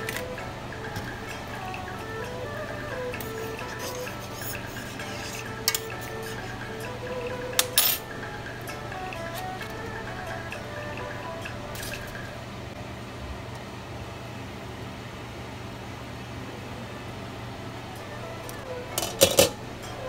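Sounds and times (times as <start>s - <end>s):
steady low hum: 0.0s - 20.0s
metal spoon clinking on pot: 3.2s - 6.6s, 7.6s - 8.1s.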